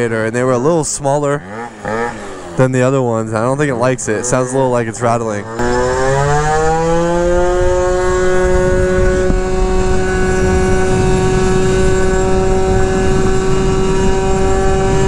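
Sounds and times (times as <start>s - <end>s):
low wind rush: 0.0s - 15.0s
scooter engine at full throttle: 0.0s - 15.0s.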